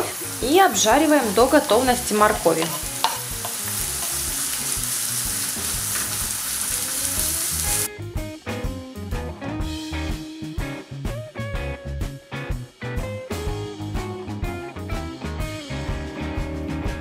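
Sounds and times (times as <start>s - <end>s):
vegetables sizzling in oil: 0.0s - 7.9s
background music with steady beat: 6.8s - 17.0s.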